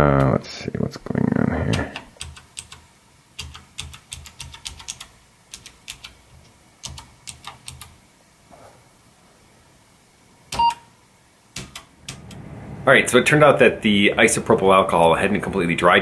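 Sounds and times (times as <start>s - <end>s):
computer beep: 10.6s - 10.8s.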